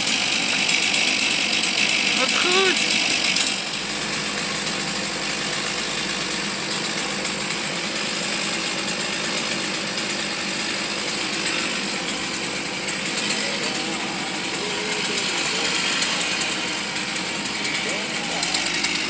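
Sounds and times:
mini excavator engine running: 0:00.0 - 0:19.0.

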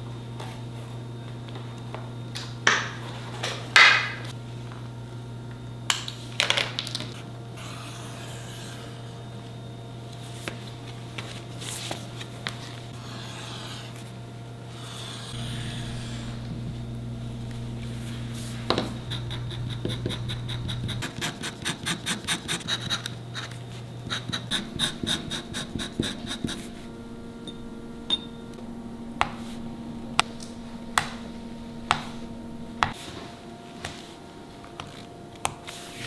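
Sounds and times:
low hum: 0:07.1 - 0:21.2, 0:22.7 - 0:35.4.

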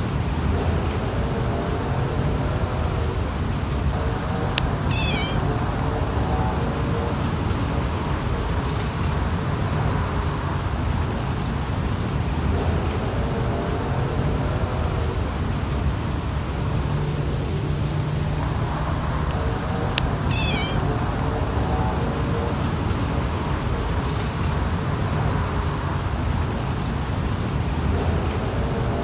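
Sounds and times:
low background rumble: 0:00.0 - 0:29.0
kitten meowing: 0:04.6 - 0:05.6, 0:20.0 - 0:21.1.

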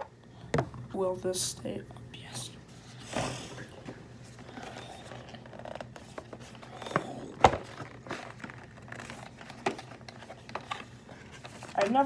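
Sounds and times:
packaging rustling and clicks: 0:04.5 - 0:12.0.

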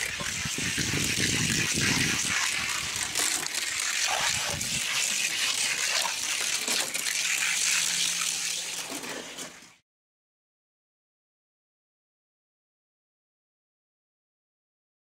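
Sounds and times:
toy cars rolling on plastic track: 0:00.0 - 0:09.8.

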